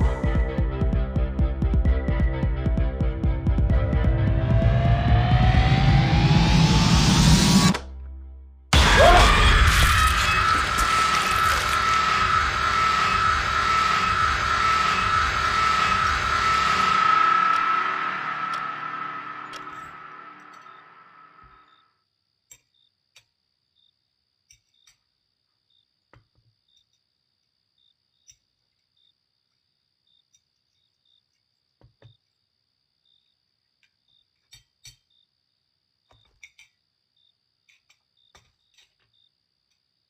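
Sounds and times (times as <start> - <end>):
faint crickets chirping: 19.7 - 40.0.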